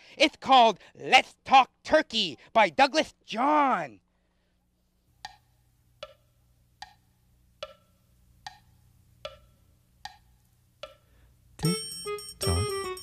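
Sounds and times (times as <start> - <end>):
wood block tick-tock knocks: 6.0 - 6.2, 7.6 - 7.9, 8.5 - 10.2.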